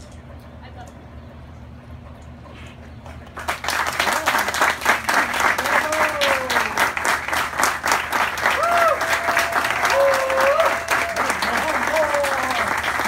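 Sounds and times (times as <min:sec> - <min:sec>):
audience applause: 0:03.3 - 0:13.0.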